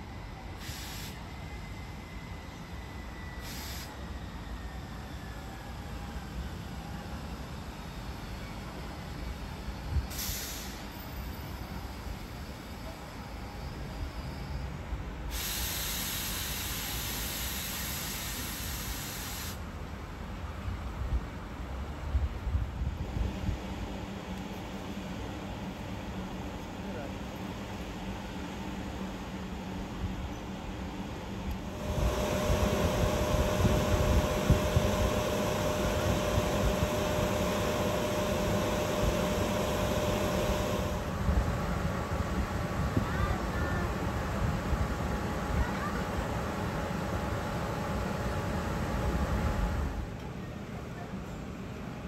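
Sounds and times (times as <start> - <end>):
compressed air hissing: 0.6 - 1.2, 3.4 - 4.0, 10.1 - 10.9, 15.3 - 19.6
electric train humming: 11.2 - 52.0
high whine: 31.4 - 45.6.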